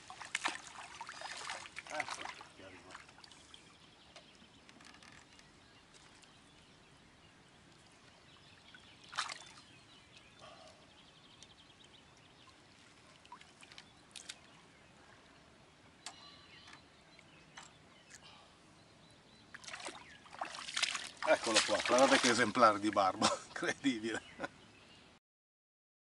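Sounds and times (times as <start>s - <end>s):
water splash: 0.0s - 3.0s, 9.1s - 9.6s, 19.6s - 22.9s
water sloshing: 0.0s - 6.6s, 7.7s - 9.8s, 19.5s - 23.4s
faint bird calls: 9.0s - 22.3s.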